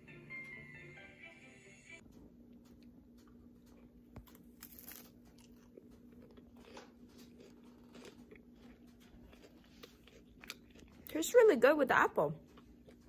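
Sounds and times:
low steady hum: 0.0 - 13.0
chewing crisp apple: 2.6 - 11.2, 12.4 - 13.0.

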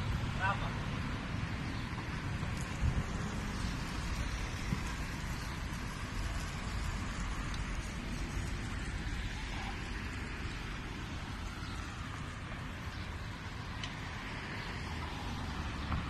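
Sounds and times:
road traffic passing: 0.0 - 16.0
wind on microphone: 2.3 - 8.5.

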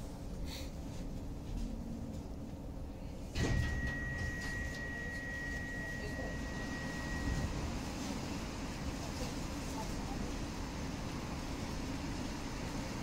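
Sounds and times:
train door clunk: 3.3 - 8.1
high-pitched warning beep: 3.4 - 7.6.

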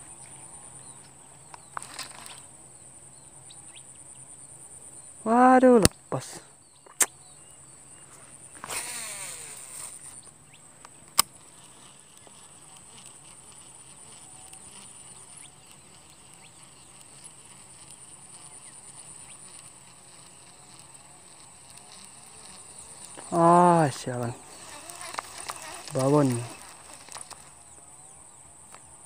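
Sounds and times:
high-pitched insect drone: 0.0 - 29.0
sharp click: 6.9 - 7.2
fishing reel whirring: 8.6 - 10.2, 11.2 - 27.6.

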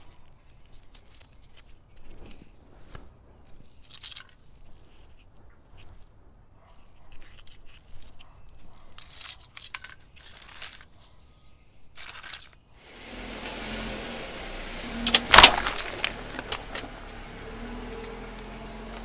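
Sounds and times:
rustling and tearing foam: 0.0 - 9.6, 14.8 - 19.0.

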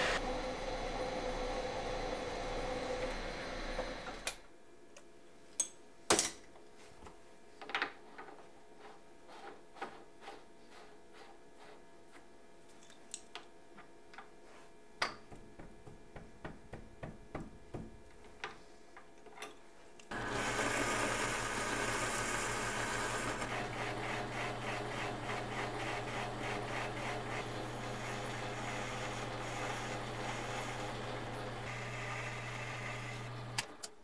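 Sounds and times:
hissing metal cut: 0.0 - 4.2, 20.1 - 33.6
lathe motor hum: 0.0 - 4.3, 20.1 - 33.8.

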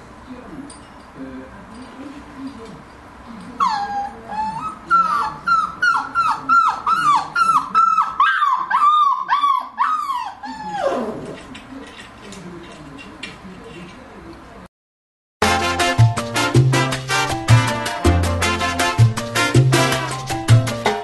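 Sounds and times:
puppy whining and yelping: 3.6 - 11.4.

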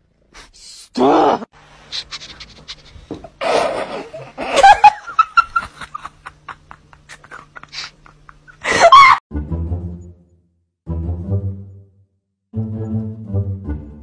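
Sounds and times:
person laughing: 1.9 - 9.2
music: 9.3 - 14.0.

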